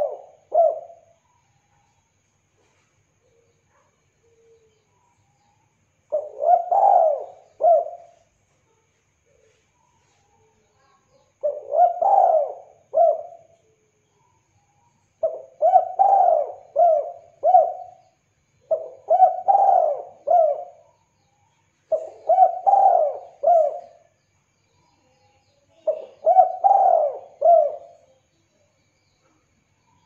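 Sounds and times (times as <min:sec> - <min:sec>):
dove cooing: 0:00.0 - 0:01.2, 0:06.1 - 0:08.2, 0:11.4 - 0:13.6, 0:15.2 - 0:20.9, 0:21.9 - 0:24.1, 0:25.8 - 0:28.1.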